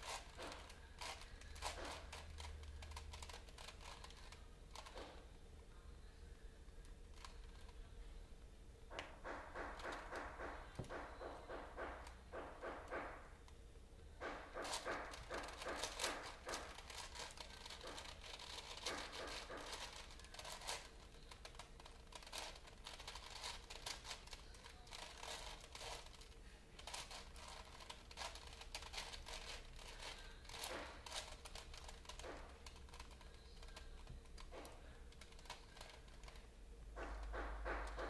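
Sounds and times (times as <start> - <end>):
puzzle cube clicking: 0.0 - 5.2, 14.6 - 36.4.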